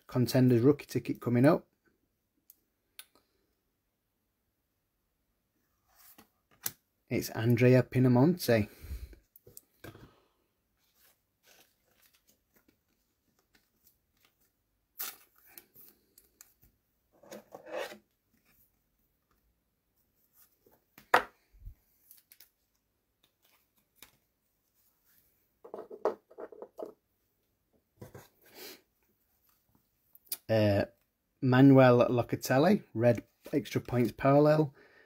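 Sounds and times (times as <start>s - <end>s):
cards and wrappers rustling: 10.8s - 16.7s, 21.7s - 24.4s.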